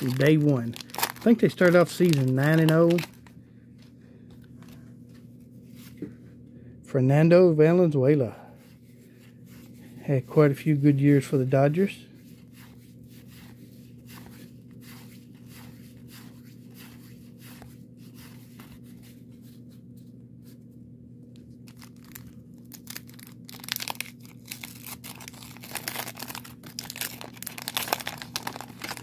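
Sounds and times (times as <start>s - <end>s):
wax-paper wrapper tearing: 0.0s - 3.3s, 21.6s - 29.0s.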